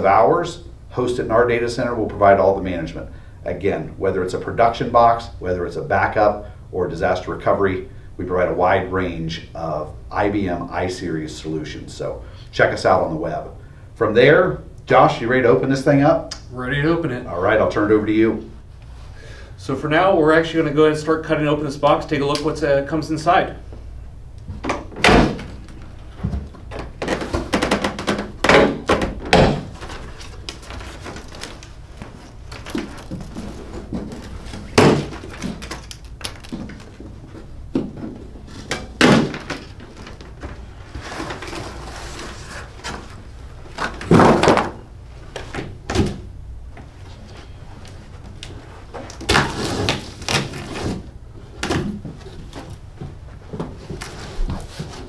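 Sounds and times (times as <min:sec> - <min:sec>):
knocks and scraping of cardboard: 0:24.5 - 0:46.2, 0:48.8 - 0:55.0.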